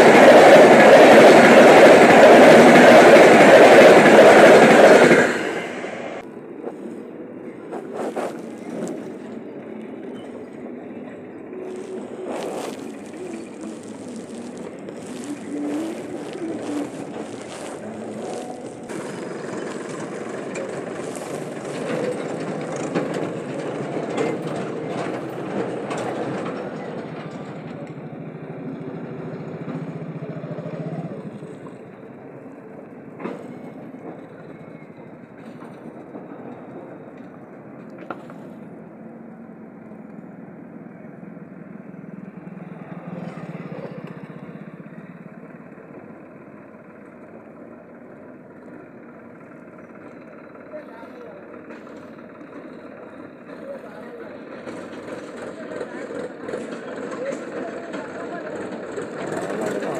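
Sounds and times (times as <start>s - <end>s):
vehicle engine and tyre noise: 0.0s - 59.9s
vehicles bumping over rails: 17.5s - 30.4s.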